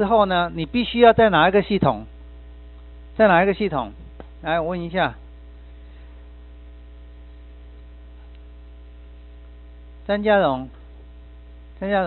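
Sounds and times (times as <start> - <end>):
man speaking: 0.0 - 2.1, 3.2 - 5.2, 10.1 - 10.7
electrical mains hum: 0.0 - 12.0.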